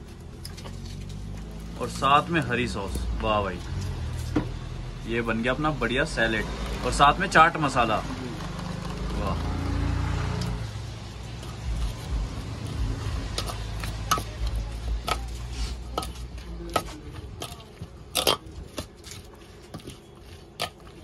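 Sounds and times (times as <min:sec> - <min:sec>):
low rumble: 0:10.3 - 0:17.4.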